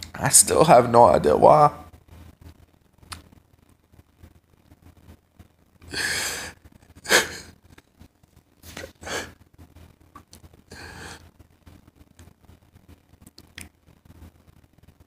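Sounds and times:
man sobbing and sniffing: 5.9s - 7.6s, 8.7s - 9.4s, 10.7s - 11.3s.

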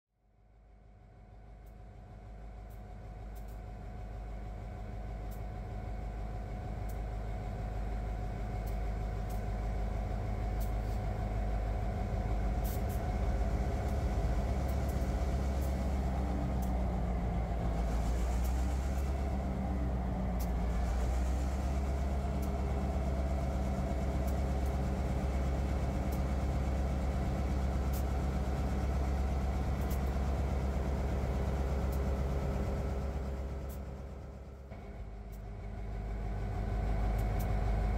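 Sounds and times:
diesel locomotive engines humming: 0.3s - 37.9s.

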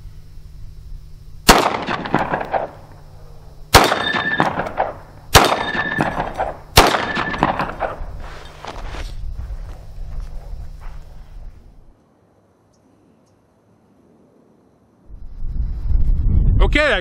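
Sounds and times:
pistol shots with echoes: 1.5s - 2.8s, 3.7s - 8.0s
steel target ringing: 3.8s - 7.6s.

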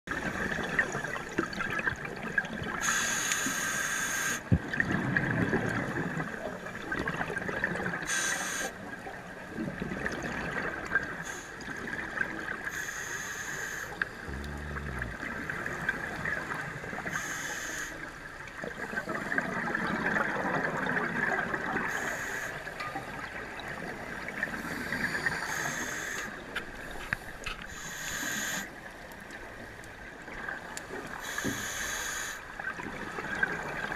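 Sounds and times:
regulator inhale hiss: 2.8s - 4.5s, 8.1s - 8.8s, 12.7s - 15.2s, 17.1s - 18.1s, 21.9s - 22.7s, 24.6s - 26.4s, 27.0s - 28.7s, 31.2s - 32.4s
exhaled air bubbling: 4.4s - 8.1s, 9.0s - 12.7s, 14.1s - 17.2s, 18.4s - 28.5s, 32.5s - 33.9s.

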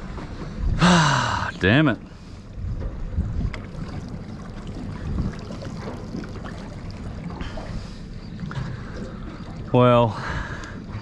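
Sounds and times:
water lapping against a hull: 0.0s - 11.0s
wind buffeting the microphone: 2.4s - 6.4s.

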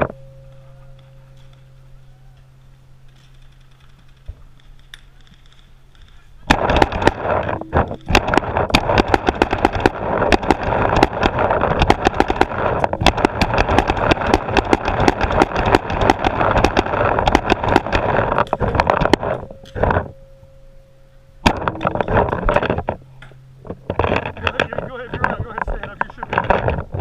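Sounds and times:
paintball markers firing rapidly: 6.0s - 19.4s.

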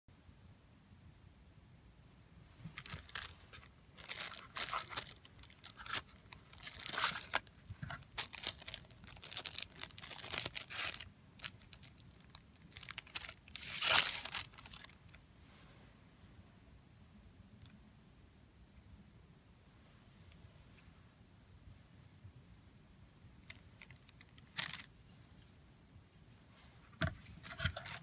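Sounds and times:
plastic bag crinkling: 2.7s - 15.2s, 23.5s - 24.9s.

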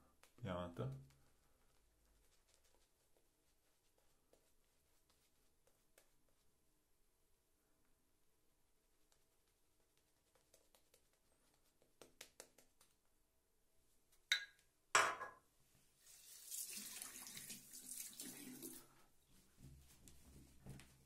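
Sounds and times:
tap water running into sink: 16.2s - 18.8s.

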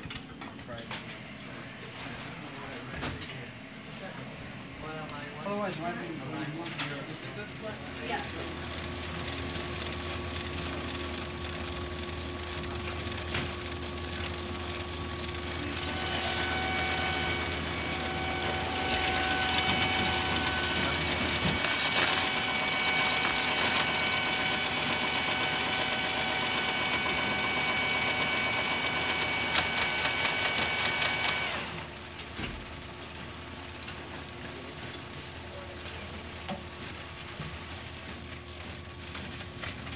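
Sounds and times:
machine whine: 4.6s - 32.9s
punched-card machine clattering: 18.4s - 31.5s.

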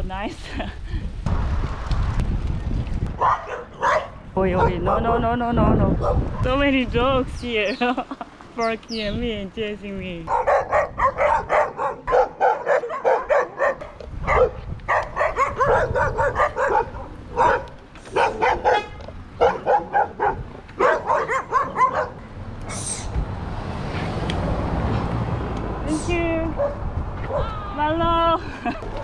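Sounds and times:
steady rushing noise: 1.0s - 3.3s
dogs barking: 3.1s - 5.4s, 6.0s - 6.5s, 10.3s - 22.3s, 26.6s - 27.5s.

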